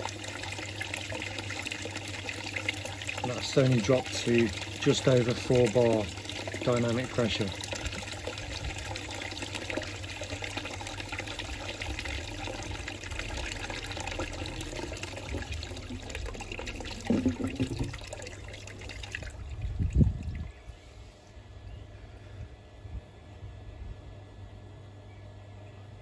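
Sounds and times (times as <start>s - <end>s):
water running from tap: 0.0s - 20.4s.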